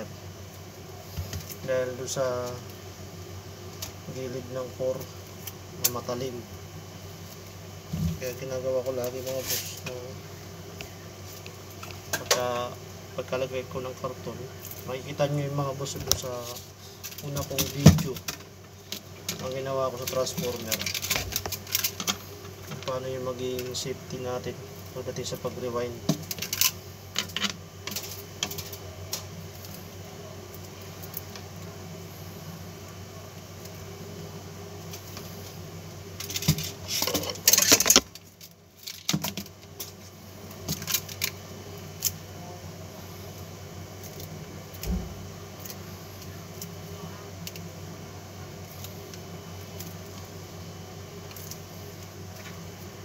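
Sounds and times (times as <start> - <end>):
wire clicking and rustling: 15.9 - 24.2, 26.0 - 29.9, 36.2 - 42.2.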